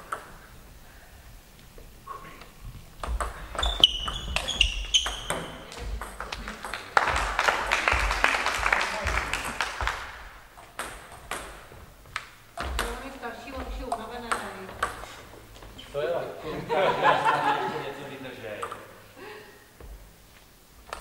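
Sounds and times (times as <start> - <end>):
spectators clapping: 5.7 - 10.5.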